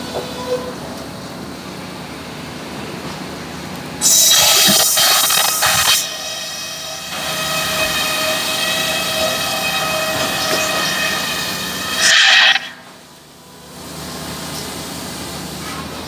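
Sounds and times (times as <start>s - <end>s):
saw blade whining: 4.0s - 13.0s
circular saw cutting timber: 4.1s - 12.9s.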